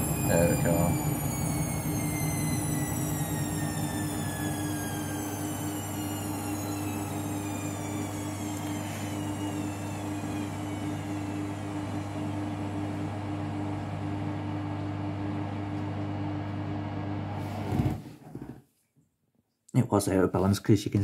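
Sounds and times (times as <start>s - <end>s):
high whine falling in pitch: 0.0s - 15.8s
washing machine motor hum: 0.0s - 18.5s.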